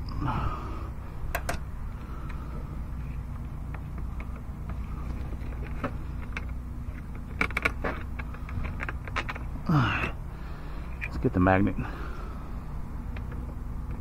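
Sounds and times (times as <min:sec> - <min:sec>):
steady low hum: 0:00.0 - 0:14.0
person groaning: 0:09.6 - 0:10.2.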